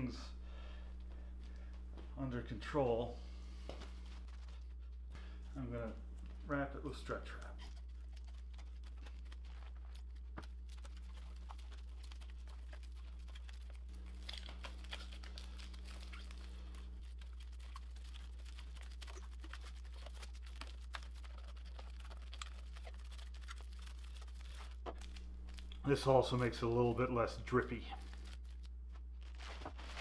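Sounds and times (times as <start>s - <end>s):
steady low hum: 0.0s - 30.0s
plastic stretch wrap crinkling: 6.2s - 30.0s.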